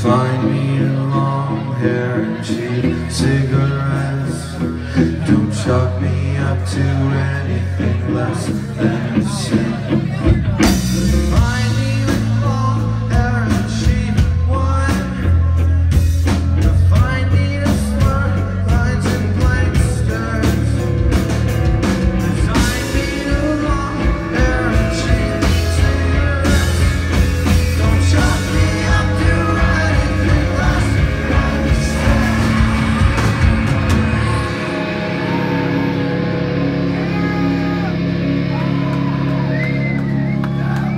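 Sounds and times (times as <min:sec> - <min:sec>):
person singing: 0:00.0 - 0:16.0, 0:22.0 - 0:39.8
electric guitars: 0:00.0 - 0:40.9
live rock band playing: 0:00.0 - 0:40.9
drum kit hits: 0:25.2 - 0:39.2.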